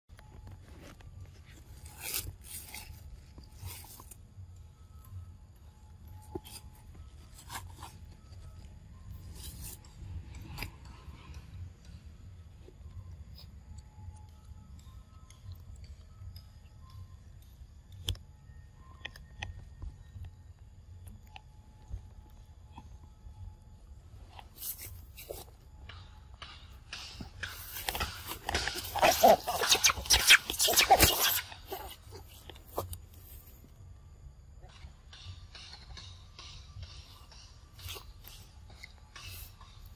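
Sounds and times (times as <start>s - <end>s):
monkey crunching hard fruit: 1.7s - 4.2s, 27.0s - 32.9s.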